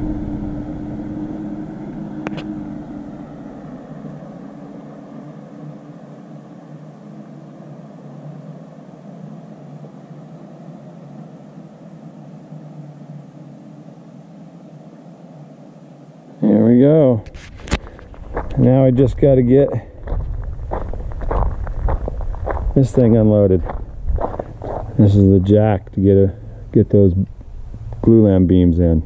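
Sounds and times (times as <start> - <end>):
truck engine driving away: 0.0 - 6.1
faint steady rumble: 0.0 - 29.0.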